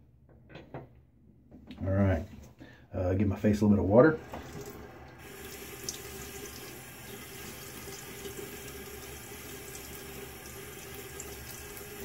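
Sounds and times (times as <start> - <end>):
faucet running into sink: 4.2 - 12.0.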